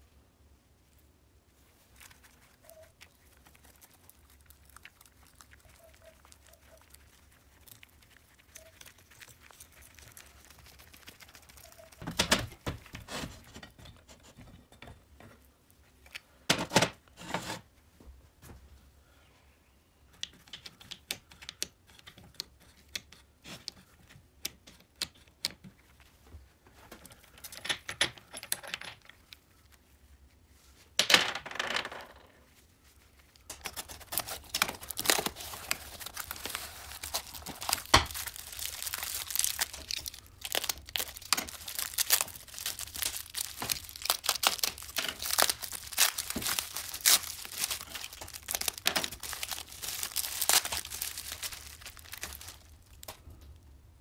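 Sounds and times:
cardboard and bubble wrap crinkling: 0:01.6 - 0:13.6, 0:32.5 - 0:53.3.

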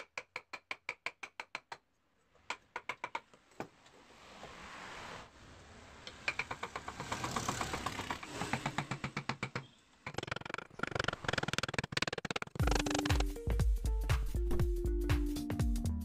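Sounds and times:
wood chisel cutting and scraping: 0:06.0 - 0:13.2
music: 0:12.6 - 0:16.0.

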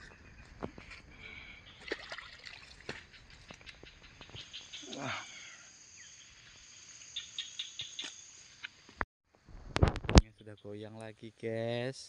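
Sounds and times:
high insect drone: 0:04.5 - 0:09.0.

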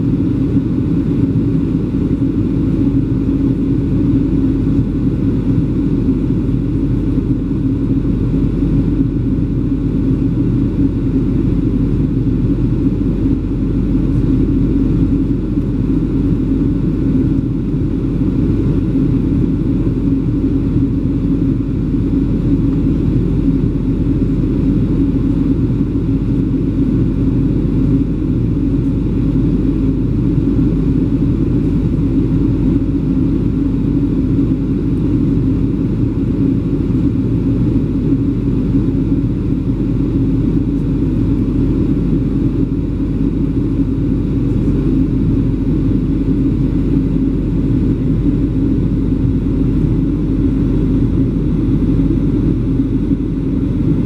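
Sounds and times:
airplane cabin engine drone: 0:00.0 - 0:54.0.

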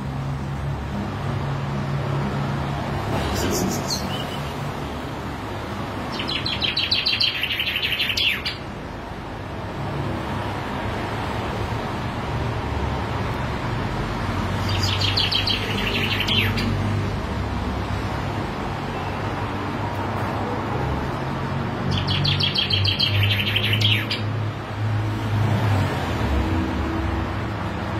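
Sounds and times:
chaffinch singing: 0:03.2 - 0:04.8, 0:06.0 - 0:08.8, 0:14.6 - 0:16.8, 0:21.8 - 0:24.4.

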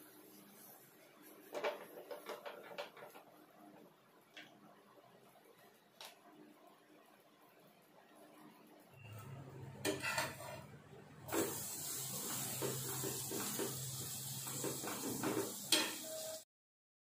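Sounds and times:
butter sizzling on a pan: 0:11.3 - 0:16.4.

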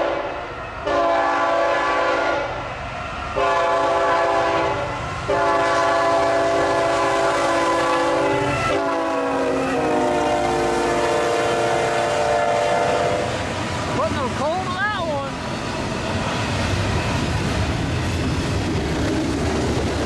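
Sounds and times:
locomotive air horn blasts: 0:00.0 - 0:02.6, 0:03.4 - 0:13.5.

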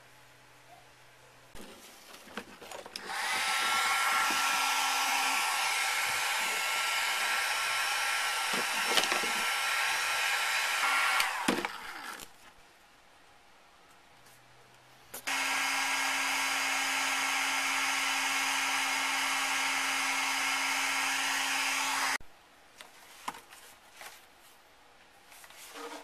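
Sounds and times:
heat gun blowing air: 0:03.0 - 0:12.2, 0:15.3 - 0:22.2.

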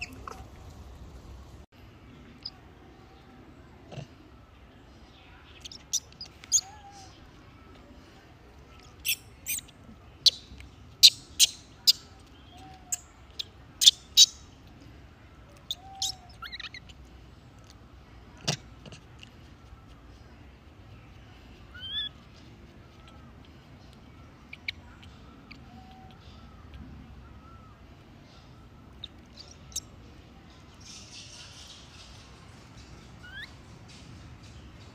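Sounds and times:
high-pitched animal chirps: 0:15.6 - 0:17.0, 0:21.7 - 0:22.2, 0:33.2 - 0:33.6.

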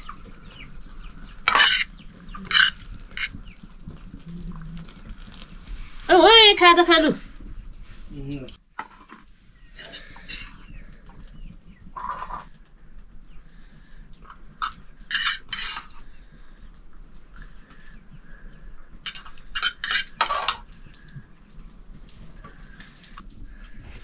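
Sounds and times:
metal pots clattering: 0:00.0 - 0:04.0, 0:11.9 - 0:12.5, 0:14.6 - 0:16.0, 0:19.0 - 0:20.7
chickens clucking: 0:00.0 - 0:05.4, 0:09.6 - 0:24.0.

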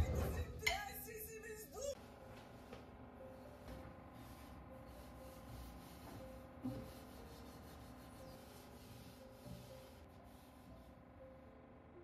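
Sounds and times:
cloth rubbing on wood: 0:04.2 - 0:10.8.

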